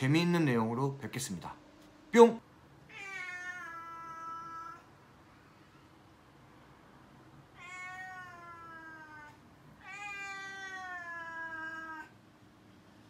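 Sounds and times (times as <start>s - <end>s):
cat meowing: 2.9s - 4.9s, 7.5s - 12.2s.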